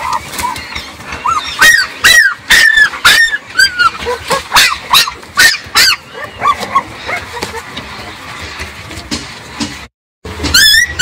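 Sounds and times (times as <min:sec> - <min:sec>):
puppies yelping: 0:00.0 - 0:07.9, 0:10.4 - 0:11.0.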